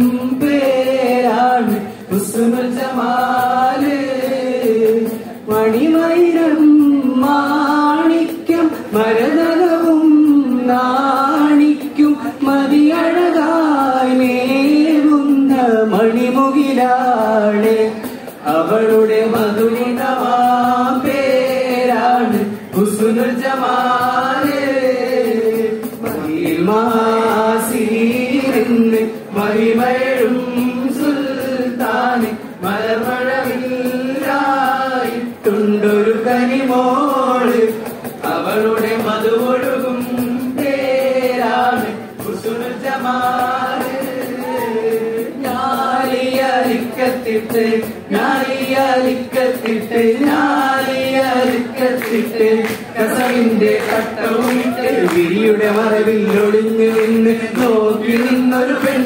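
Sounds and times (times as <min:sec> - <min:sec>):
men singing in unison: 0:00.0 - 0:59.0
sharp percussive taps: 0:46.1 - 0:59.0.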